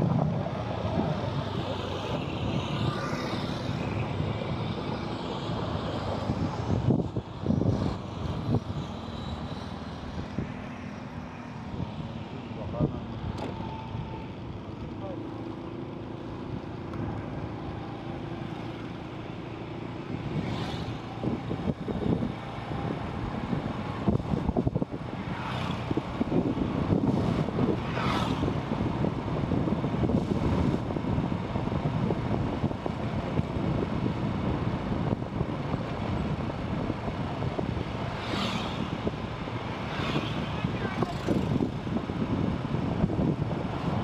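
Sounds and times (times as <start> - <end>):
wind buffeting microphone: 0.0 - 10.7, 20.0 - 44.0
motorcycle engine and road rumble: 0.0 - 44.0
vehicles swishing past: 0.0 - 44.0.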